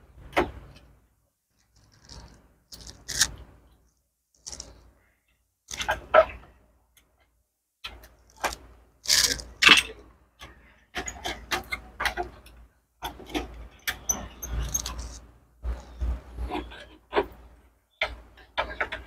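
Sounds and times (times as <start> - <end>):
clicks and rattles of plastic and metal: 7.8 - 19.0.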